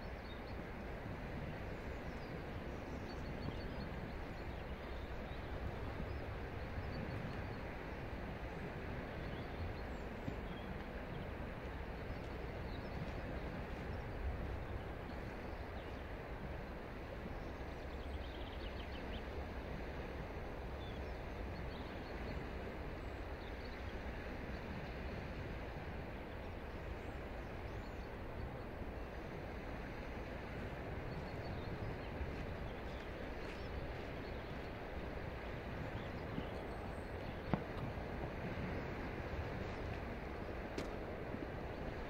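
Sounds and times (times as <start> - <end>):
constant low rush of noise: 0.0 - 42.0.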